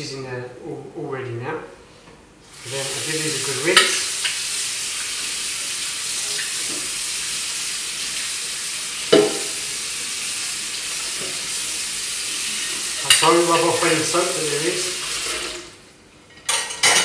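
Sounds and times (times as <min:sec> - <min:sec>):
kitchen tap running: 0:02.5 - 0:15.8
water splashing onto a plate: 0:02.6 - 0:15.7.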